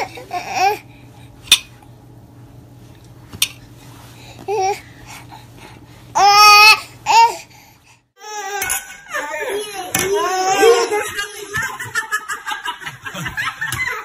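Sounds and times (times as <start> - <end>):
baby crying: 8.2 - 8.8.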